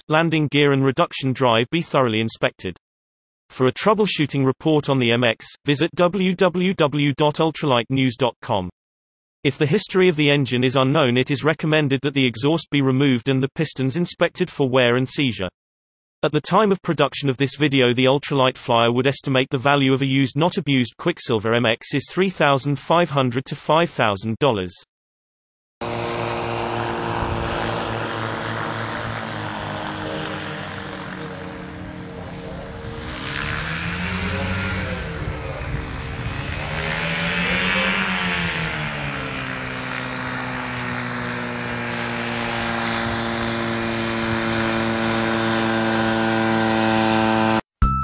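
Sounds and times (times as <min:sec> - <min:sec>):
ultralight engine and propeller: 0:25.8 - 0:47.7.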